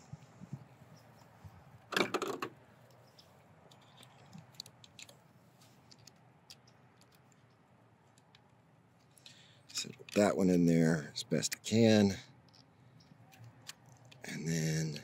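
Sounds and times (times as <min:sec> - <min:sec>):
small clicks and ticks: 0:02.8 - 0:05.2, 0:05.8 - 0:10.3.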